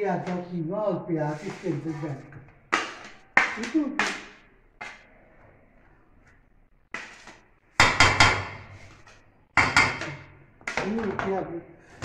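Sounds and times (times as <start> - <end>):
spatula knocking on steel bowl: 7.8 - 8.6, 9.6 - 11.4.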